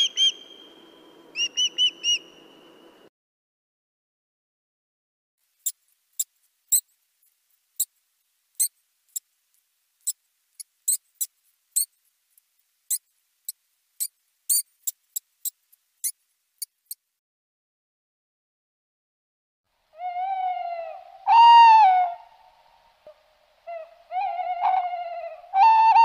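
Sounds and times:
water vole squeaking: 10.0s - 11.9s, 14.0s - 17.0s.

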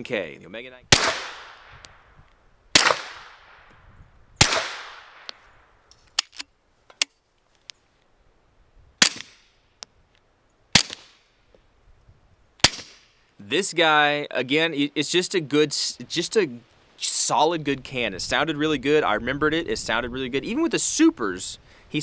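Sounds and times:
suppressed pistol shots: 0.9s - 2.0s, 2.7s - 3.7s, 4.4s - 5.4s, 9.0s - 9.4s, 10.7s - 11.2s, 12.6s - 13.1s.

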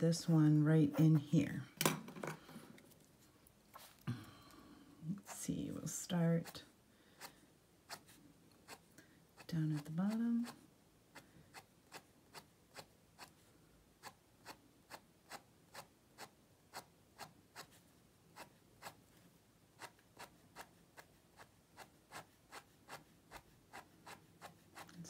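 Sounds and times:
pen scratching on paper: 7.2s - 13.4s, 14.0s - 19.0s, 19.8s - 25.0s.

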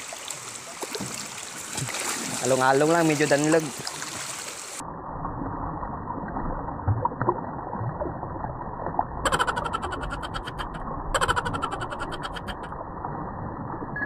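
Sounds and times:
river water running over rocks: 0.0s - 4.8s
small water splashes: 0.0s - 4.8s
crackling noise bursts: 4.8s - 14.0s.

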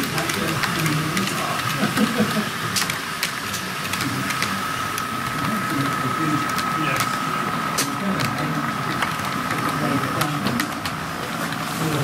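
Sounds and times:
crowd murmur: 0.0s - 12.0s.

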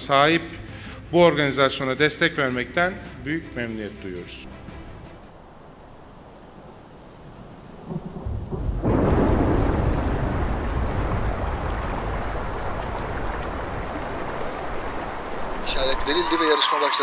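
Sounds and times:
river rushing over rocks: 11.7s - 17.0s.

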